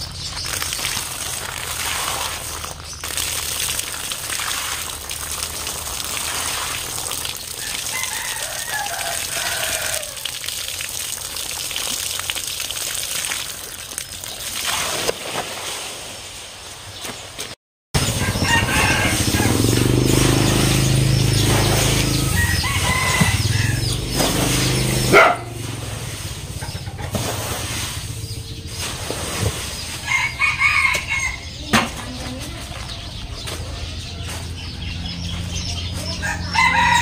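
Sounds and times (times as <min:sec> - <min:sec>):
water gushing from drum: 0:00.0 - 0:15.6, 0:18.0 - 0:32.9
rooster crowing: 0:07.6 - 0:10.3, 0:18.1 - 0:20.0, 0:21.9 - 0:24.1, 0:30.0 - 0:31.5, 0:36.2 - 0:37.0.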